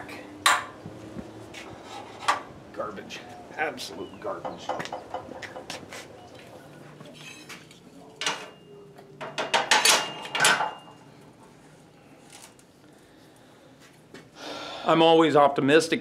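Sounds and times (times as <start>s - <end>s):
thin metallic ringing: 6.2s - 11.2s
metal clamps clanking on workbench: 9.2s - 10.9s.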